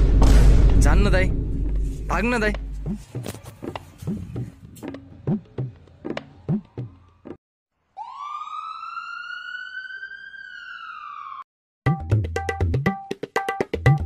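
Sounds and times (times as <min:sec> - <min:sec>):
siren-like whistling tone: 0:08.0 - 0:11.5.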